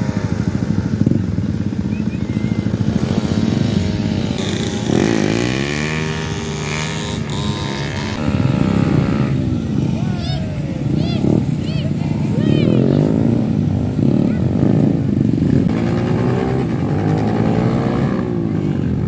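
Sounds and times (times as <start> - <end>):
motorcycle engine revving: 0.0 - 19.0
motorcycle engines running: 0.0 - 19.0.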